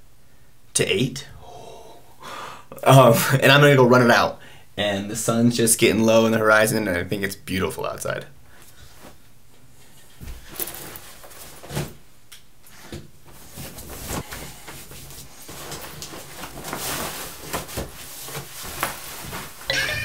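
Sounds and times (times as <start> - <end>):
clothing rustling: 8.5 - 19.8
light knocks and shuffles: 12.7 - 19.7.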